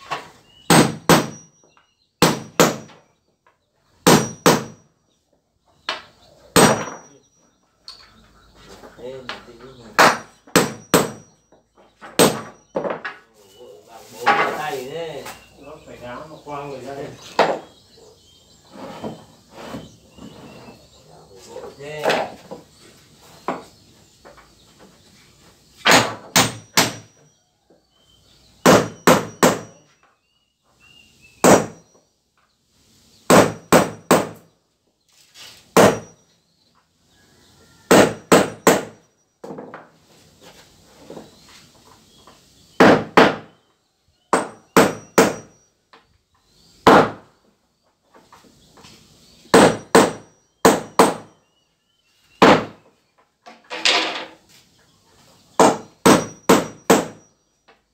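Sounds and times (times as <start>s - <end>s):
hammer nailing wooden floorboards: 0.7s - 1.4s, 2.2s - 3.0s, 4.0s - 4.8s, 5.8s - 7.1s, 10.0s - 11.3s, 12.0s - 13.2s, 25.8s - 27.2s, 28.6s - 29.9s, 31.4s - 31.9s, 33.3s - 34.4s, 35.7s - 36.2s, 37.9s - 39.8s, 42.8s - 43.5s, 44.3s - 45.6s, 46.8s - 47.3s, 49.5s - 51.3s, 52.4s - 52.8s, 55.6s - 57.2s.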